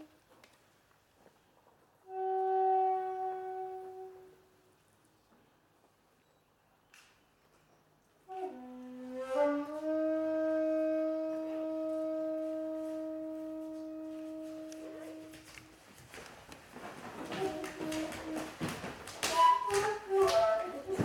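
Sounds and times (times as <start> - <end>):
bamboo flute notes: 2.1 - 4.6, 8.3 - 15.8, 16.8 - 21.0.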